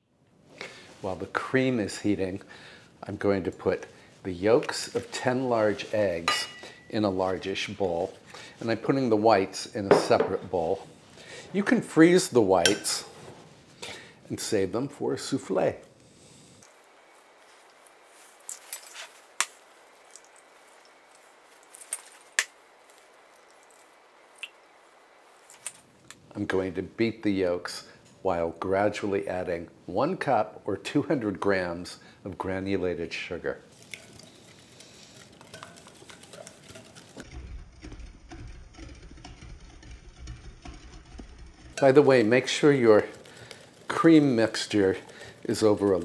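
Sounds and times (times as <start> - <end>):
eggshell handling noises: 17.2 - 26.2, 33.7 - 46.0
eggs cracking on bowl rim: 33.8 - 37.2.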